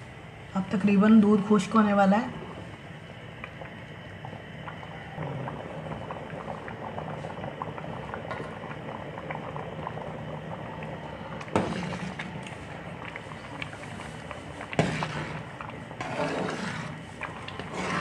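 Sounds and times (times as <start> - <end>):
thick liquid bubbling and spitting: 2.4 - 18.0.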